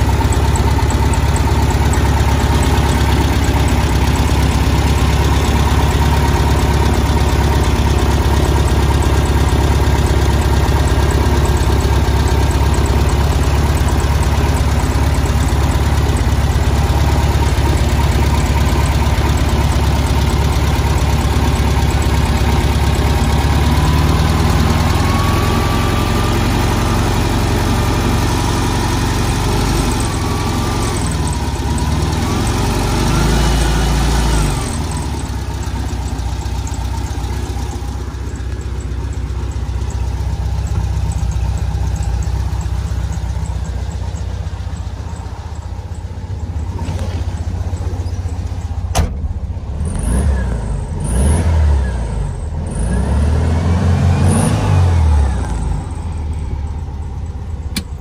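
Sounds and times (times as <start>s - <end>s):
car engine revving and idling: 0.0s - 58.0s
sharp click: 57.7s - 58.0s.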